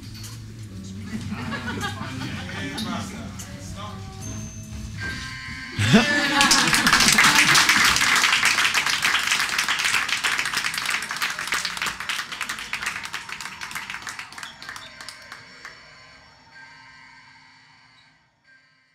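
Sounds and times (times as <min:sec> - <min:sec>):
audience applauding: 0:05.8 - 0:15.8.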